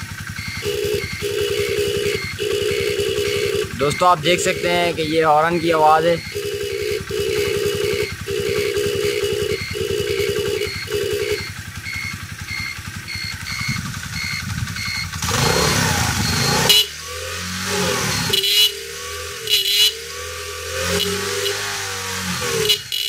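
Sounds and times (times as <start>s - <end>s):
electric horn blasts: 0.0s - 11.6s, 15.2s - 23.0s
turn-signal beeper: 0.0s - 15.5s, 18.0s - 20.2s
motorcycle engine revving: 0.0s - 23.0s.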